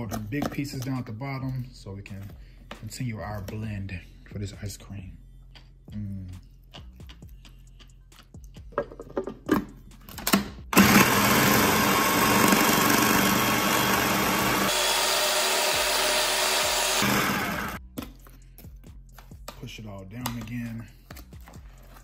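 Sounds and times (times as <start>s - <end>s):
food processor churning ice: 10.8s - 17.8s.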